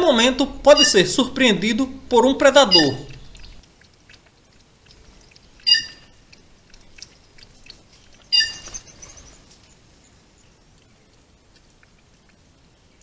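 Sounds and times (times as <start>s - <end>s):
harsh bird calls: 0.0s - 3.6s, 5.4s - 10.6s
animal lapping water: 3.1s - 9.4s.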